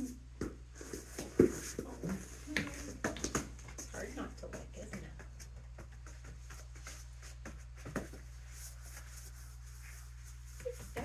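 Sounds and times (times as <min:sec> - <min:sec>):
steady low hum: 0:00.0 - 0:11.0
faint rustles: 0:05.2 - 0:11.0.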